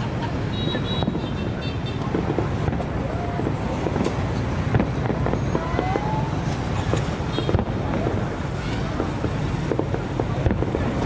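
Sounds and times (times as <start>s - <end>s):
fireworks bangs and crackles: 0.0s - 11.0s
fireworks whistling: 0.4s - 11.0s
low rumble of bursting shells: 2.0s - 11.0s.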